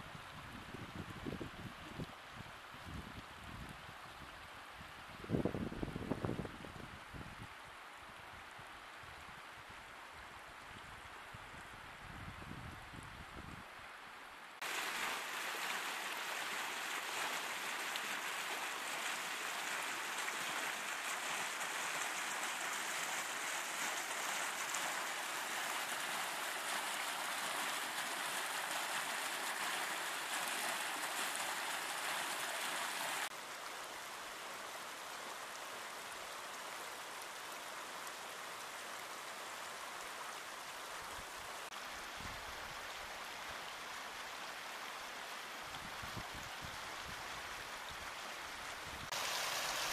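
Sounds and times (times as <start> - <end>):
creek water flowing over rocks: 14.1 - 49.9.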